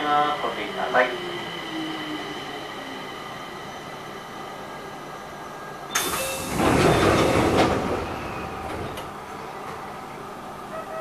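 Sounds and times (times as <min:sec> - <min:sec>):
train doors sliding shut: 0:05.9 - 0:10.1.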